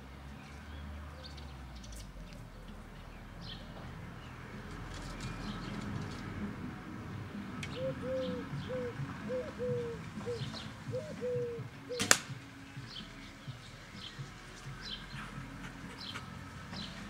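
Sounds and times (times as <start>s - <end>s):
small birds chirping: 0.0s - 17.0s
bird cooing: 4.5s - 17.0s
arrow shot snap: 11.9s - 12.5s.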